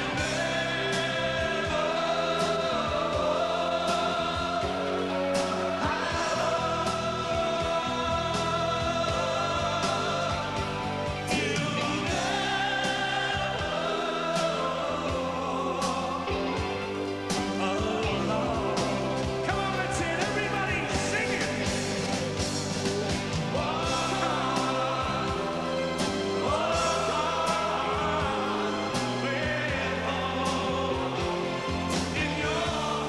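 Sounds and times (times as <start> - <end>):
crowd singing with lead singer: 0.0 - 33.0
live pop band playing: 0.0 - 33.0.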